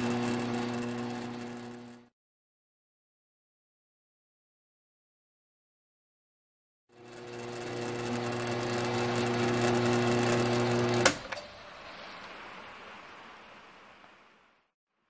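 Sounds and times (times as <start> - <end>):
milling machine motor humming: 0.0 - 2.1, 6.9 - 11.5
rain on a metal roof: 11.2 - 14.7.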